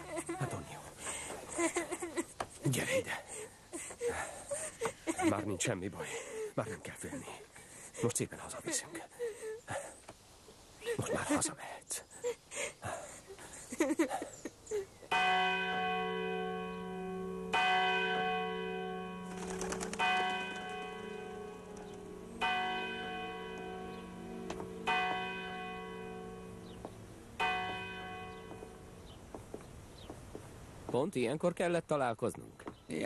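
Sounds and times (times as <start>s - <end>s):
church bell tolling: 15.1s - 29.1s.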